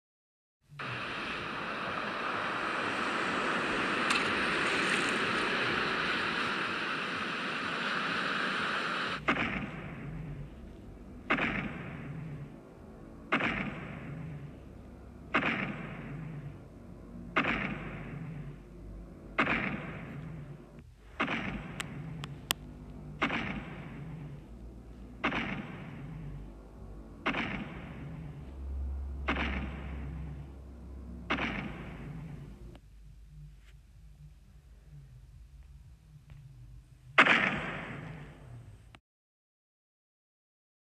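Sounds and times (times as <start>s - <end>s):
ocean surf: 0.8s - 9.2s
heavy booming footsteps: 13.3s - 14.6s, 19.4s - 22.5s.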